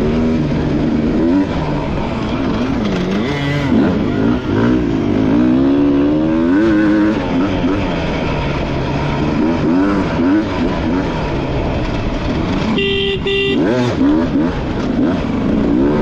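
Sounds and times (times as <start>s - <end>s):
dirt bike engine revving: 0.0s - 16.0s
horn toots: 12.6s - 14.4s.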